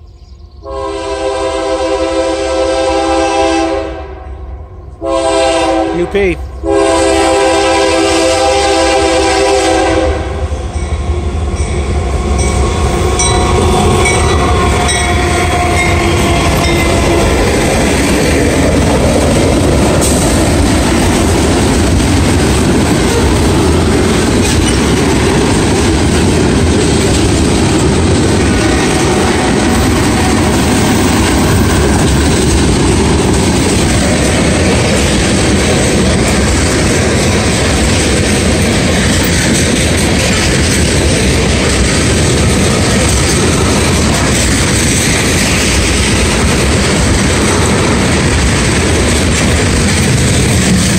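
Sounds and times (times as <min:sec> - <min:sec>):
train wheels rumbling on rails: 0:00.0 - 0:50.9
train horn: 0:00.6 - 0:10.5, 0:12.3 - 0:17.6, 0:23.0 - 0:23.5
locomotives passing: 0:04.3 - 0:50.9.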